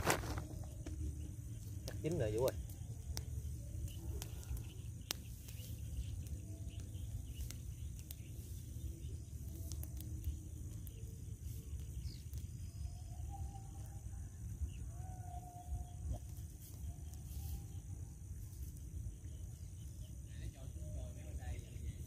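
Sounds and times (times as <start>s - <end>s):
crickets and insects droning: 0.0s - 22.0s.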